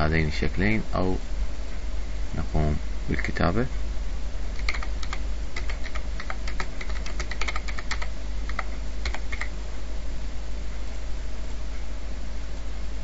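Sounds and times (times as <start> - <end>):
steady low hum: 0.0 - 13.0
typing on computer keyboard: 4.6 - 9.5.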